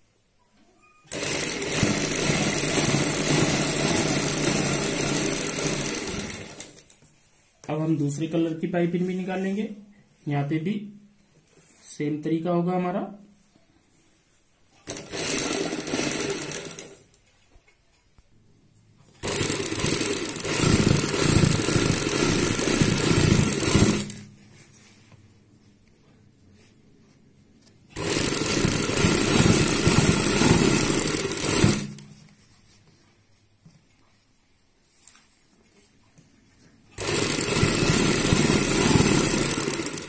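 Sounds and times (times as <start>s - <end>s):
sewing machine stitching: 1.0s - 7.0s, 14.8s - 17.2s, 19.2s - 24.3s, 27.9s - 32.2s, 36.9s - 40.0s.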